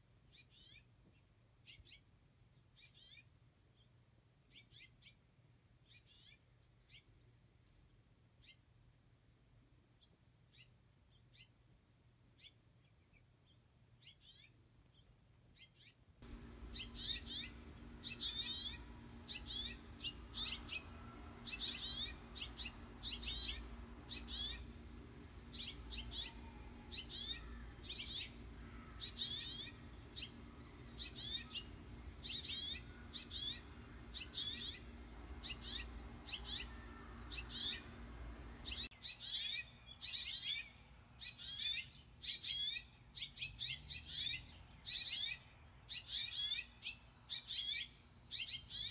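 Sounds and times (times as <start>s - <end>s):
steady low hum: 16.2s - 38.9s
finches chirping: 16.3s - 48.9s.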